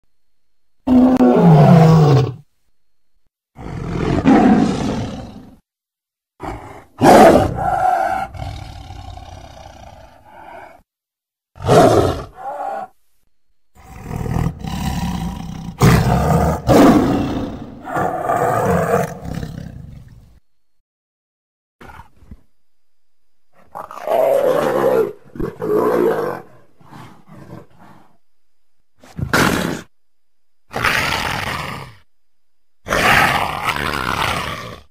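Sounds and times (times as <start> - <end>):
big cat roaring and snarling: 0.9 - 2.4, 3.6 - 5.6, 6.4 - 10.8, 11.6 - 13.0, 13.8 - 20.1, 23.6 - 28.2, 29.1 - 29.9, 30.7 - 32.0, 32.8 - 34.9.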